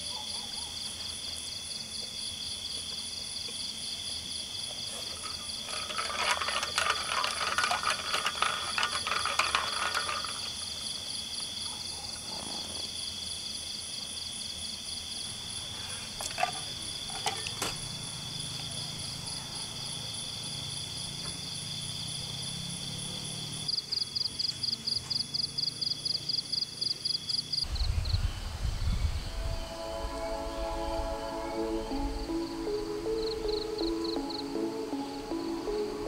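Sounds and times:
insects chirping: 0.0 - 36.0
rattling clicking burst: 5.2 - 10.8.

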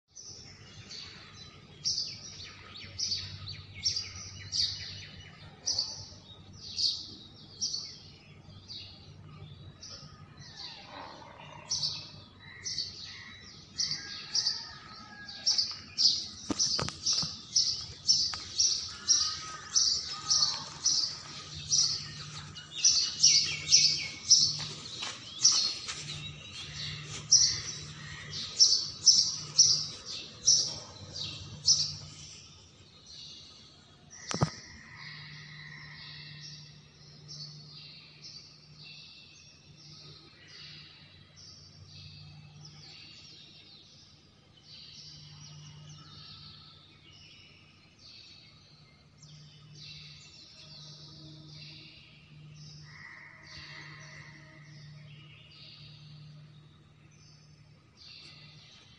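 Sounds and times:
birds chirping: 0.2 - 33.6.

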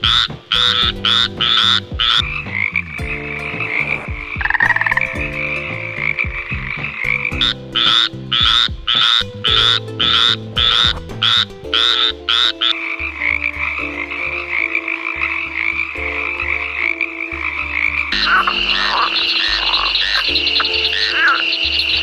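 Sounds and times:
frog chorus: 0.0 - 3.0, 3.7 - 6.2, 6.9 - 22.0
loud frog croaks: 3.8 - 5.1, 5.9 - 22.0.

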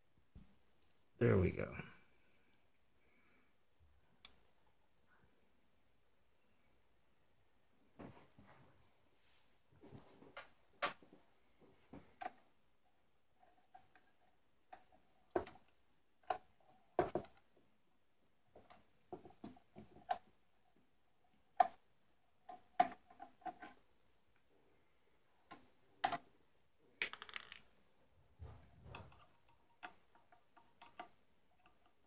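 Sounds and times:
plastic parts being handled: 22.4 - 23.9, 25.4 - 26.3, 26.9 - 32.0.

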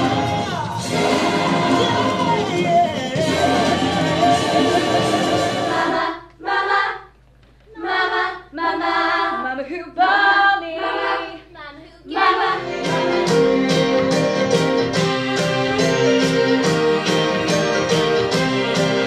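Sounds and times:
piano chords: 0.0 - 6.1, 12.6 - 19.0
musical backing music: 0.0 - 6.4, 12.1 - 19.0
young voices singing unaccompanied: 0.0 - 13.9.

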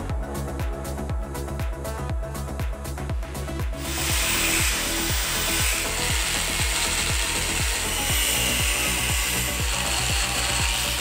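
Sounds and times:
background music with beat: 0.0 - 11.0
angle grinder cutting steel: 3.8 - 11.0.

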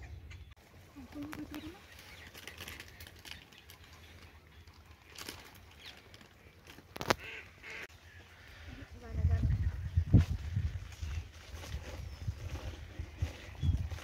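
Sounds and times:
faint waterbird calls: 0.0 - 9.8.

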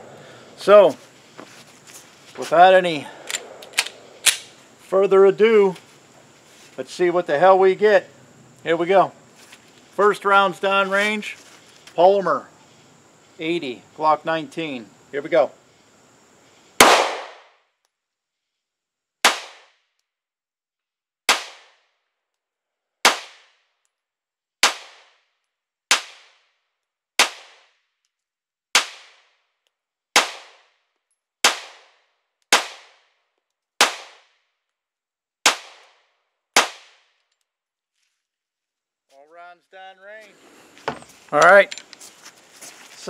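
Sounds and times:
pistol shots: 16.8 - 17.5, 36.6 - 37.0.

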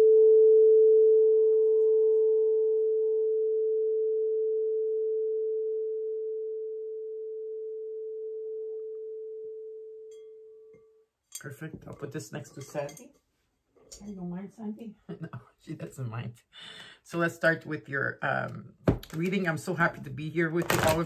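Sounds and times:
singing bowl ringing: 10.0 - 11.0.

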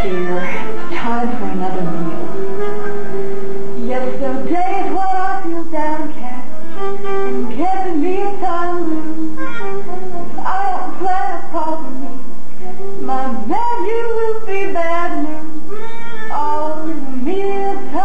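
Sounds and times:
woman singing: 0.0 - 2.7, 3.8 - 12.2, 12.8 - 18.0
plucked string backing music: 0.0 - 18.0.

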